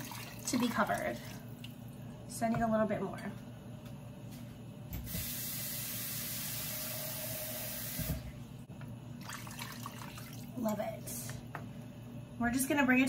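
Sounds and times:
tap running: 0:07.8 - 0:08.9.

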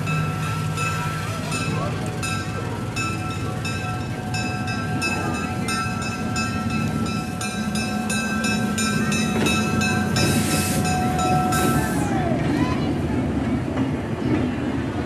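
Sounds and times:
locomotive bell ringing: 0:00.0 - 0:12.4
diesel engine running: 0:00.0 - 0:12.5
air hiss: 0:10.2 - 0:11.0.

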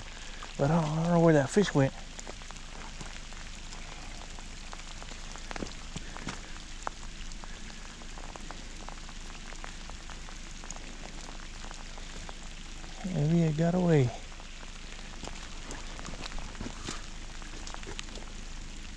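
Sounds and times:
light rain falling: 0:00.0 - 0:18.9
raindrops ticking close by: 0:00.0 - 0:18.9.

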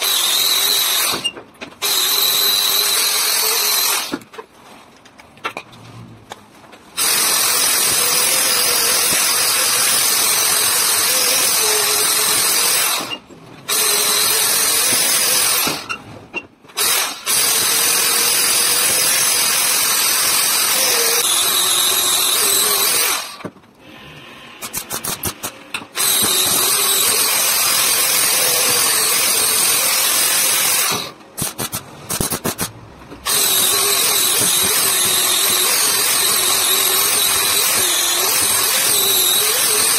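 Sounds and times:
angle grinder grinding metal: 0:07.0 - 0:15.9, 0:16.8 - 0:23.4, 0:24.6 - 0:32.7, 0:33.3 - 0:39.9.

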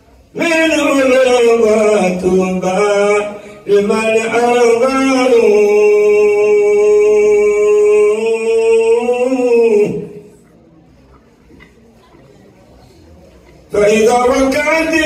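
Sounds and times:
man chanting into a microphone: 0:00.3 - 0:10.4, 0:13.7 - 0:15.0.

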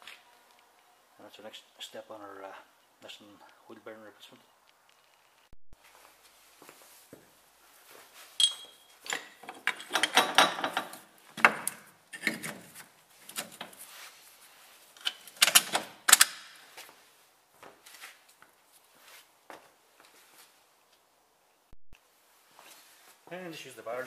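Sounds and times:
metal parts clanking and scraping: 0:08.4 - 0:11.1.

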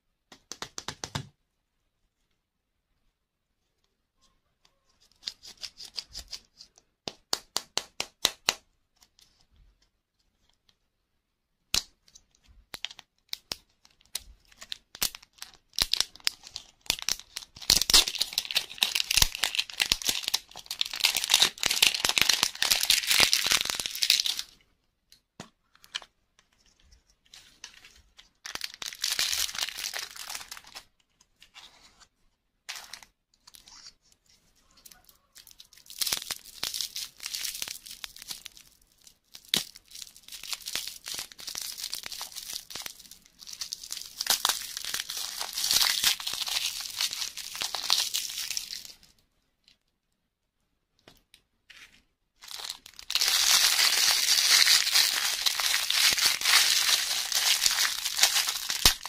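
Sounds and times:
plastic wrap crinkling and tearing: 0:13.3 - 0:24.6, 0:27.3 - 0:30.9, 0:35.0 - 0:49.1, 0:51.7 - 0:59.0.

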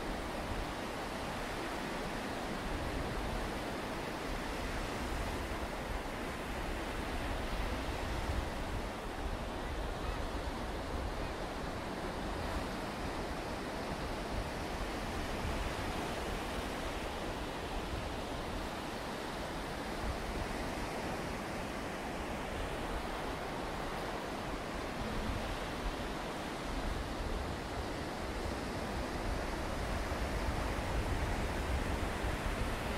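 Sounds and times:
wind buffeting microphone: 0:26.6 - 0:32.9.

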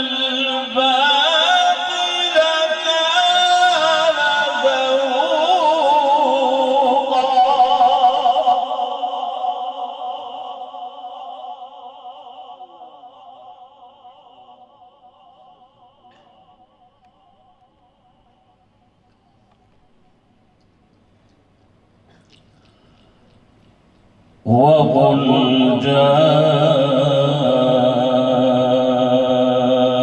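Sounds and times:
man reciting melodically: 0:00.0 - 0:14.6, 0:24.4 - 0:30.0.

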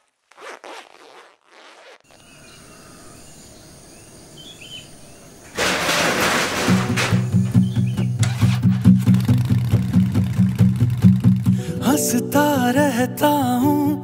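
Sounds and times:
zipper on leather jacket: 0:00.0 - 0:02.2
faint bird chirps: 0:02.1 - 0:05.6, 0:07.5 - 0:08.2.

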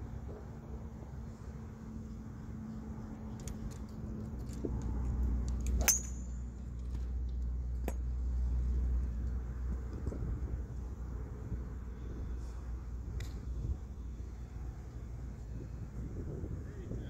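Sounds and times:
golf club striking ball: 0:05.8 - 0:06.4.

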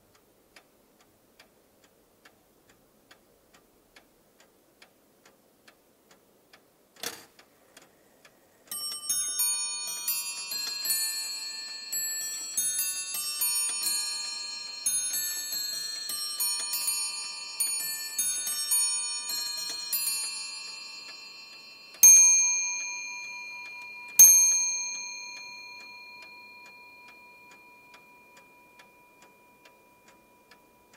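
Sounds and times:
clock ticking: 0:00.0 - 0:30.9
clock bells chiming: 0:08.7 - 0:30.9.

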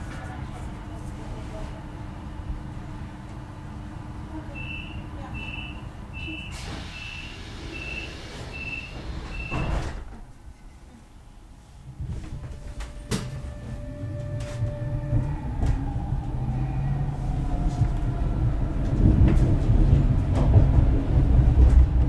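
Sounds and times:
train rumbling: 0:00.0 - 0:22.0
sliding doors shutting thud: 0:06.5 - 0:10.3.

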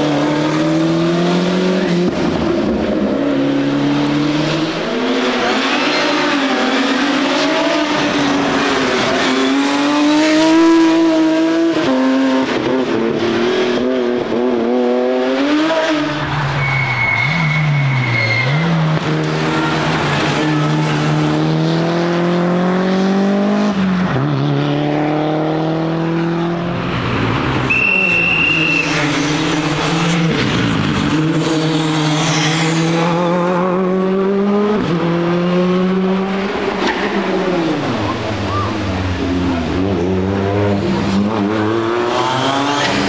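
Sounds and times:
rally car engines racing past: 0:00.0 - 0:43.0
brief high squeal: 0:16.5 - 0:18.7, 0:27.7 - 0:29.1.

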